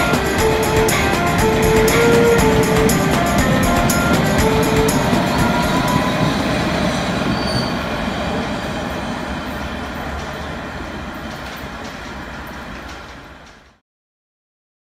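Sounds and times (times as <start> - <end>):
high wheel squeals: 0.0 - 10.2
train wheels rumbling on rails: 0.0 - 13.8.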